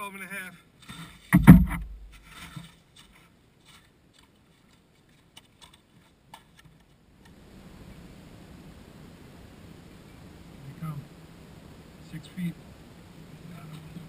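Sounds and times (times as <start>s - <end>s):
faint outdoor hiss: 0.0s - 14.0s.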